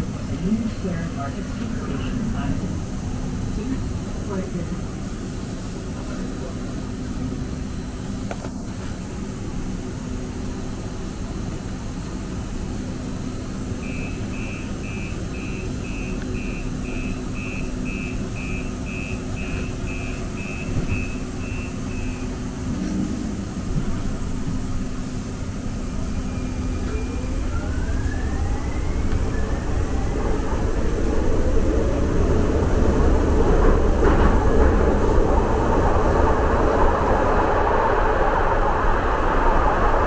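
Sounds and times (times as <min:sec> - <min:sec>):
rail car steady hum: 0:00.0 - 0:40.0
short high door warning beeps: 0:13.8 - 0:22.4
electric motor rising whine: 0:26.2 - 0:31.5.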